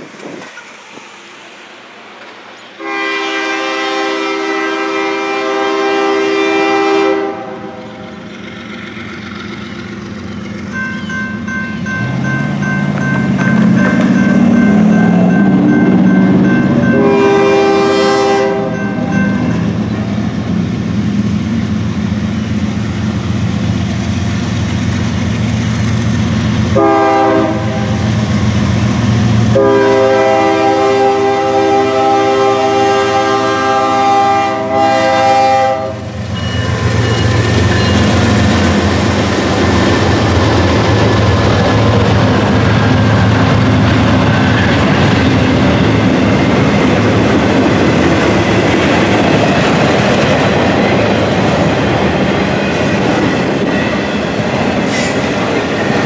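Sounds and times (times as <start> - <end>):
train wheels rumbling on rails: 0.0 - 56.0
locomotive horn blasts: 2.8 - 7.8, 16.6 - 19.4, 26.8 - 28.1, 29.5 - 36.2.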